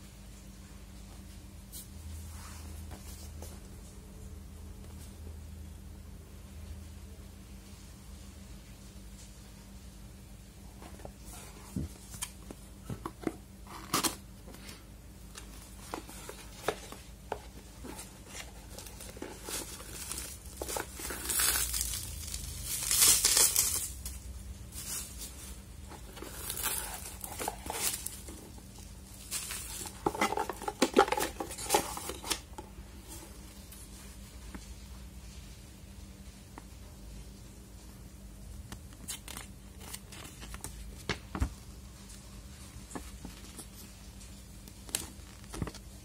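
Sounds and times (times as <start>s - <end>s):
plastic wrap crinkling: 15.3s - 33.8s.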